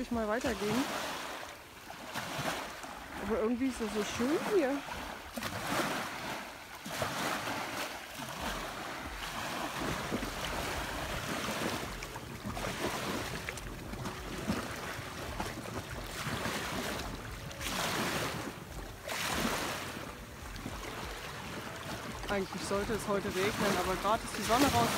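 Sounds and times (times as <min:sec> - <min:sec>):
waves lapping against shore: 0:00.0 - 0:24.9
wind buffeting microphone: 0:08.4 - 0:24.9.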